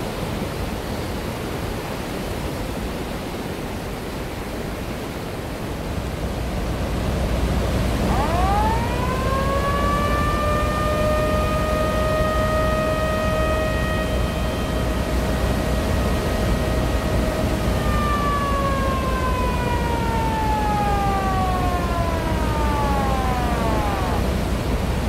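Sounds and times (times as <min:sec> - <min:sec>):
floodwater roaring through spillway: 0:00.0 - 0:25.0
siren: 0:07.6 - 0:25.0.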